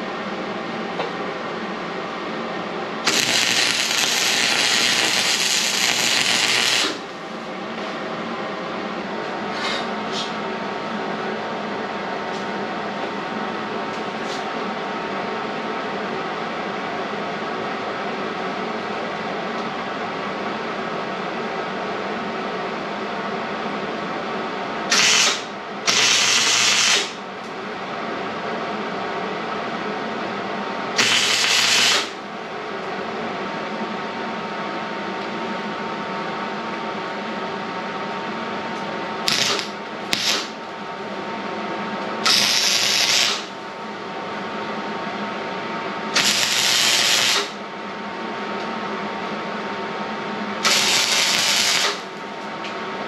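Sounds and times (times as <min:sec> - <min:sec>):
steady hum: 0:00.0 - 0:53.0
welding arc crackling: 0:03.1 - 0:07.1, 0:24.9 - 0:27.2, 0:31.0 - 0:32.2, 0:39.3 - 0:40.6, 0:42.2 - 0:43.5, 0:46.2 - 0:47.6, 0:50.6 - 0:52.2.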